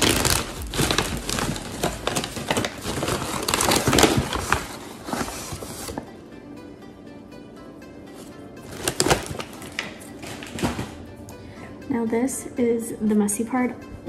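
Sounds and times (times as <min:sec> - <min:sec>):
plastic bag crinkling: 0:00.0 - 0:06.1, 0:08.6 - 0:11.0
faint background music: 0:00.0 - 0:14.0.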